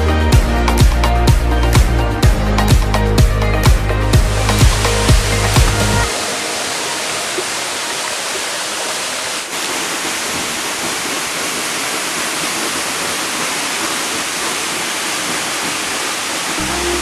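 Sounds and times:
waterfall crashing into pool: 4.2s - 17.0s.

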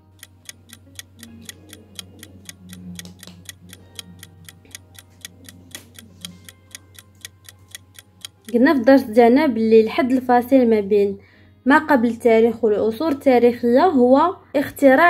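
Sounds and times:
clock ticking: 0.0s - 9.0s.

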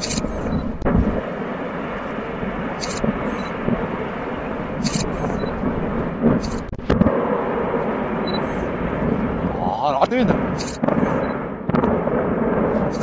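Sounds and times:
sharp crack: 0.0s - 4.0s, 4.7s - 13.0s
demolition rumbling: 0.0s - 13.0s
indistinct voices: 9.4s - 10.8s.

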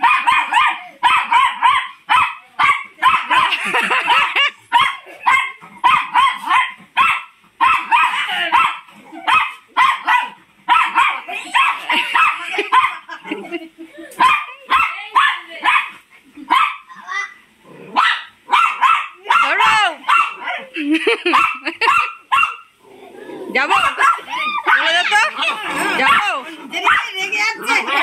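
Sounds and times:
small dog yapping: 0.0s - 13.0s, 17.9s - 20.6s, 23.7s - 27.1s.

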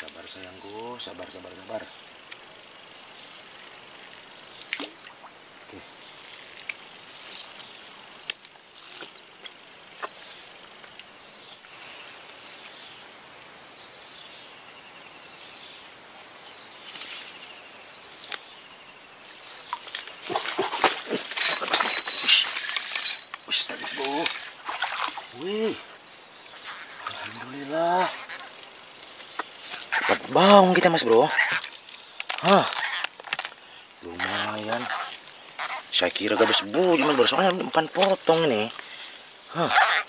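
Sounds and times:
insects droning: 0.0s - 40.0s
fish splashing in water: 23.8s - 25.5s.

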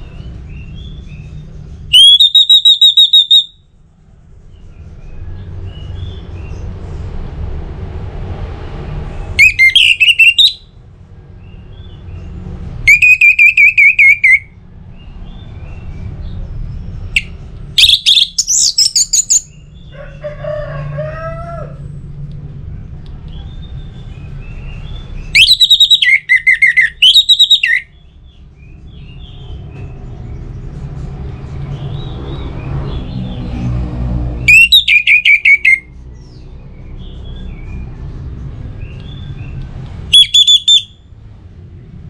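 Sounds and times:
thrush singing whistled notes: 1.9s - 3.6s, 9.4s - 10.7s, 12.9s - 14.6s, 17.1s - 19.6s, 24.8s - 28.0s, 34.4s - 36.4s, 40.1s - 41.0s.

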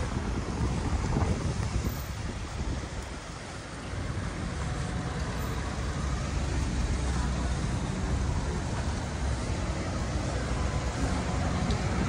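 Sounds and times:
low traffic rumble: 0.0s - 12.0s.

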